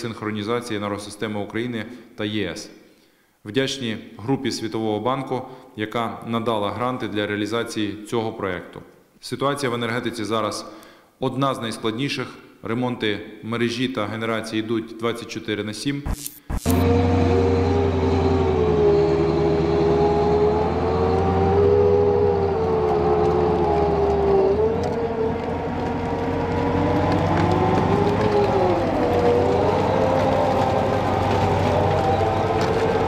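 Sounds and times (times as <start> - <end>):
wavering whine: 16.1 - 25.4
tracked vehicle engine running: 16.1 - 33.0.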